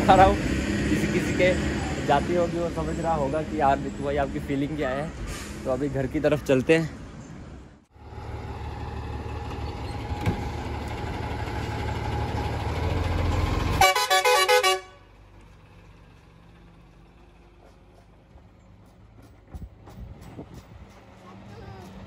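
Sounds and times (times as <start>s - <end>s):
truck engine running: 7.9s - 22.0s
warbling truck horn: 13.7s - 15.1s.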